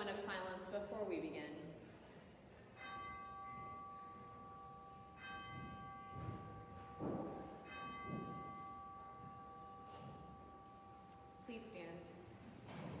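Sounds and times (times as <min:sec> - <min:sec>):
bell ringing: 0:02.8 - 0:12.1.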